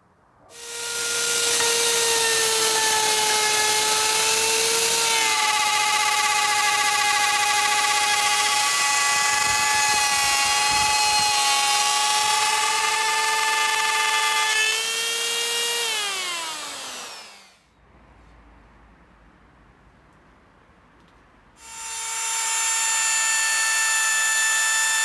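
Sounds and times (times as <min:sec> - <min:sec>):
electric router whining: 0:00.5 - 0:17.6.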